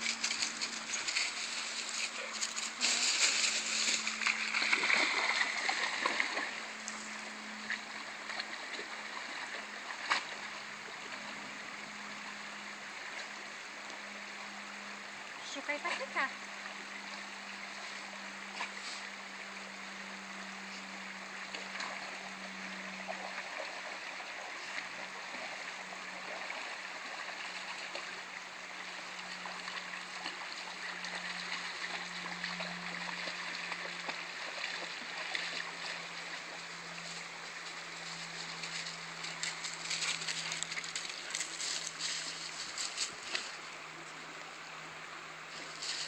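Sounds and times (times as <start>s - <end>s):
footsteps on dry leaves: 0.0s - 4.9s, 37.0s - 43.6s
creek water running: 0.0s - 46.0s
low steady hum: 0.0s - 46.0s.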